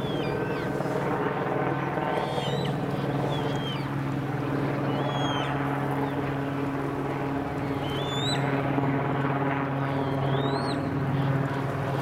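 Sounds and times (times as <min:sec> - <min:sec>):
small birds chirping: 0:00.0 - 0:00.7, 0:02.1 - 0:04.0, 0:04.8 - 0:06.3, 0:07.7 - 0:08.6, 0:09.9 - 0:11.0
steady engine drone: 0:00.0 - 0:12.0.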